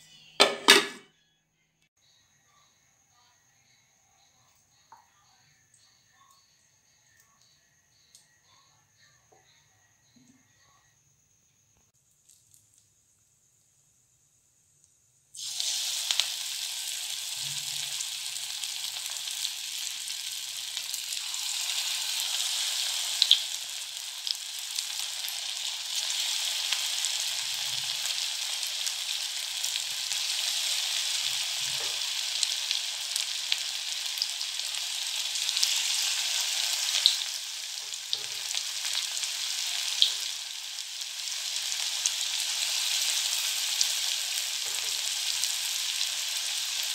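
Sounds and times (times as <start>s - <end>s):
fritters sizzling in hot oil: 12.1s - 46.9s.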